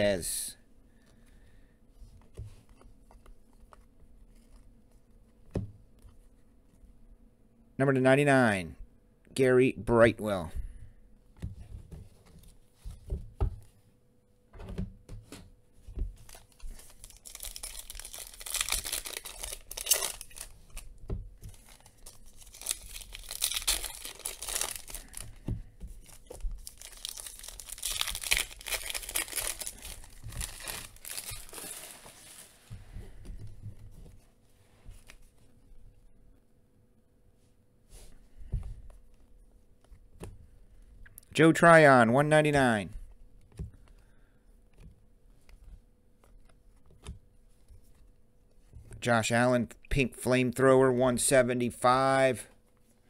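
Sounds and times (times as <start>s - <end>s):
foil wrapper tearing and crinkling: 16.3s - 20.9s, 21.5s - 25.4s, 26.0s - 32.2s.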